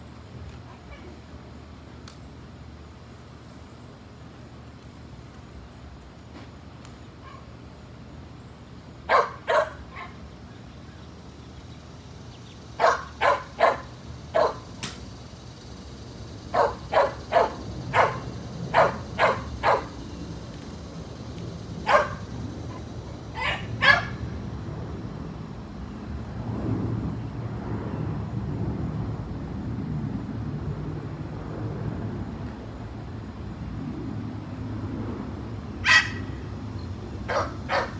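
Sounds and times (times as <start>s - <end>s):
low steady hum: 0.0s - 37.9s
dog barking: 9.1s - 10.2s, 12.8s - 14.6s, 16.5s - 19.9s, 21.9s - 22.2s, 23.4s - 24.2s, 35.8s - 36.2s, 37.3s - 37.9s.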